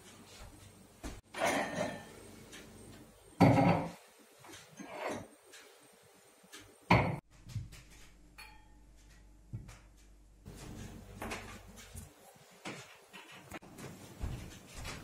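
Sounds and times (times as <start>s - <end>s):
cupboard and glassware clattering: 1.2s - 2.2s, 3.4s - 4.0s, 6.9s - 7.8s.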